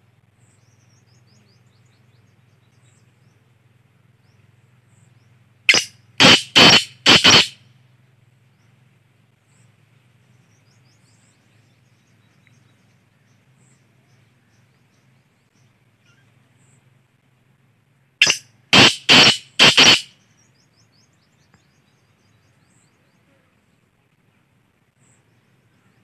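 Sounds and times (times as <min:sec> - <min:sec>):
francolin harsh call: 0:05.7 - 0:07.6, 0:18.2 - 0:20.2.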